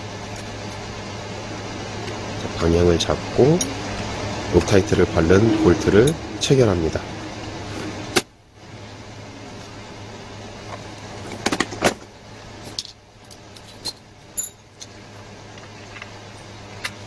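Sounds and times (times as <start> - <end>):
steady low hum: 0.0 - 17.0
metallic clinks of tools: 13.8 - 14.7.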